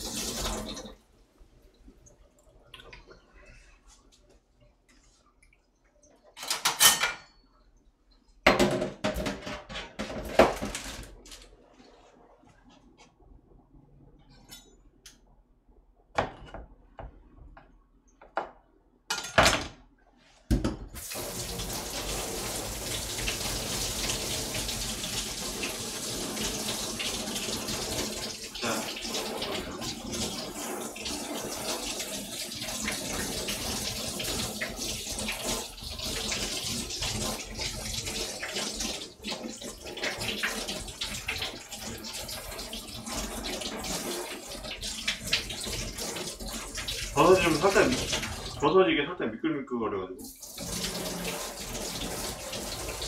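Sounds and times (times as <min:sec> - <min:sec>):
kitchen utensils clattering: 0:06.3 - 0:07.4, 0:08.5 - 0:11.1, 0:19.1 - 0:19.8.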